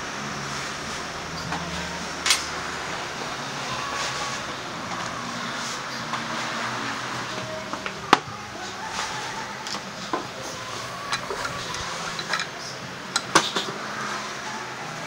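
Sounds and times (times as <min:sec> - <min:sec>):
clinks of hand tools and parts: 0:11.1 - 0:13.8.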